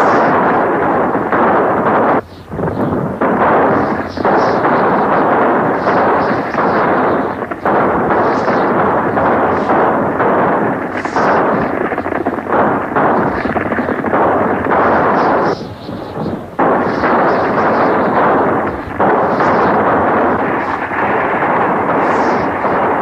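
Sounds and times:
gunshots: 0.0 - 23.0.

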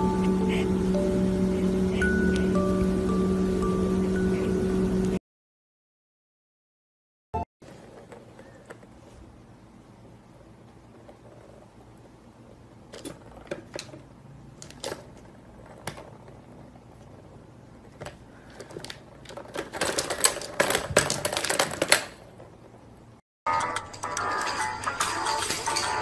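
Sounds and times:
plastic balls clicking in toy track: 18.5 - 22.5.

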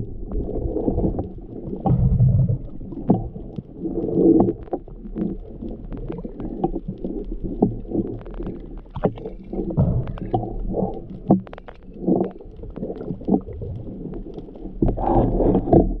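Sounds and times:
low rumble: 0.0 - 16.0
underwater swirling and gurgling: 0.0 - 16.0.

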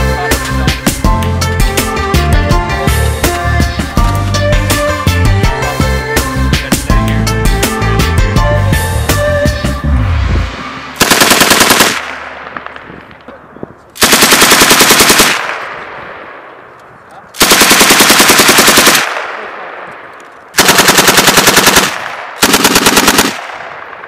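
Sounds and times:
machine gun firing bursts: 11.0 - 12.7, 14.0 - 15.6, 17.4 - 19.3, 20.5 - 23.7
gunshot echo: 18.9 - 20.1.

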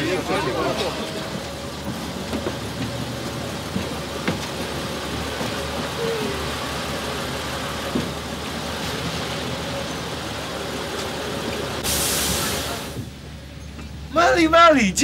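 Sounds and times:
bus engine hum: 0.0 - 15.0
street noise: 0.0 - 15.0
loud air hiss: 11.8 - 13.1.

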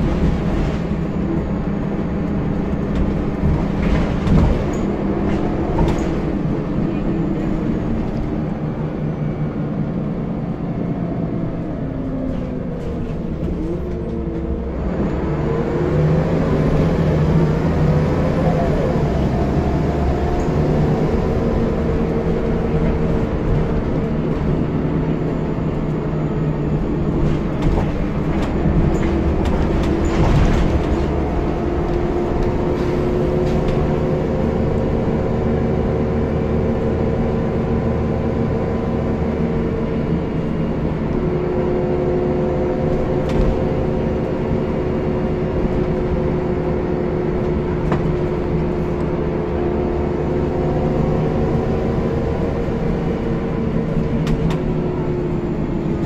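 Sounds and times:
bus engine running: 0.0 - 56.0
knocks and rattles: 2.7 - 6.4, 27.2 - 33.8.

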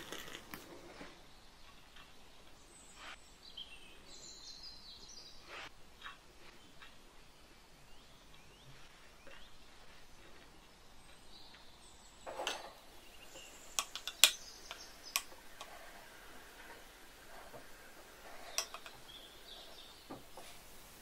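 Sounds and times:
spoon tapping plastic cup: 13.7 - 15.7, 18.4 - 19.0.

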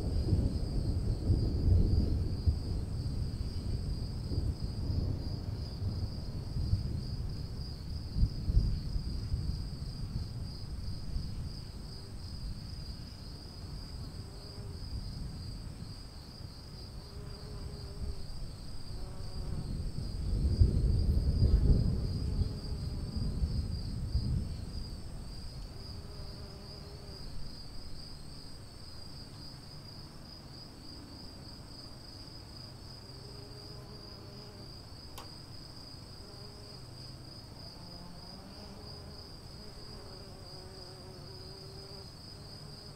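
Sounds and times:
distant thunder rumble: 0.0 - 12.6, 19.2 - 25.7
crickets chirring: 0.0 - 42.9.

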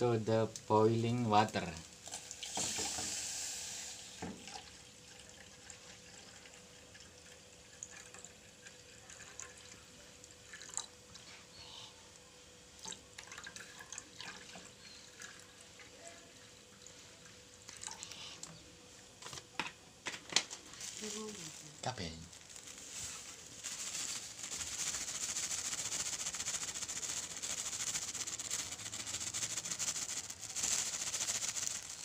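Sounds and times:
water pouring into a pot: 1.4 - 11.2, 12.8 - 18.3.

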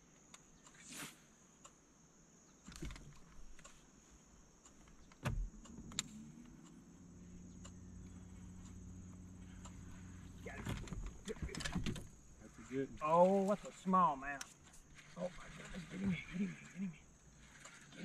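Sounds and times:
electric trolling motor hum: 5.5 - 11.3, 12.0 - 18.0.

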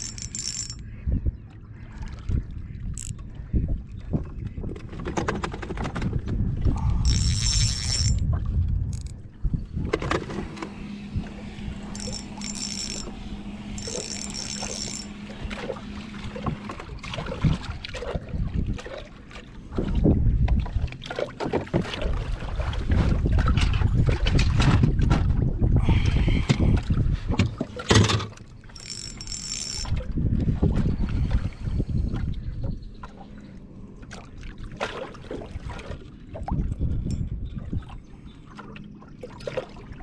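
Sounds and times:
spinning reel cranking: 0.0 - 0.8, 6.8 - 8.2, 8.9 - 9.1, 11.9 - 13.2, 13.8 - 15.2, 28.7 - 30.0
wind buffeting microphone: 2.2 - 10.4, 16.3 - 18.9, 19.7 - 20.9, 22.0 - 27.6, 29.8 - 33.0, 36.3 - 38.1
steady low hum: 6.3 - 20.8.

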